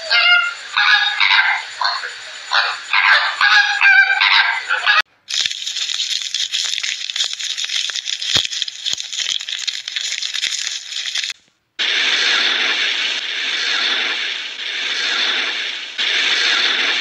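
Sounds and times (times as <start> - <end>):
flamingos honking: 0.0 - 5.1
dry hiss with clicks: 5.3 - 17.0.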